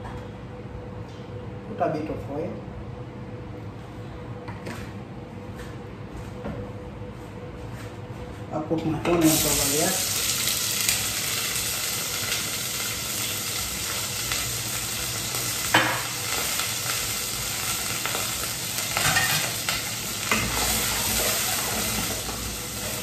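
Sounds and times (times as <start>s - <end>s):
onions sizzling in oil: 9.2s - 23.0s.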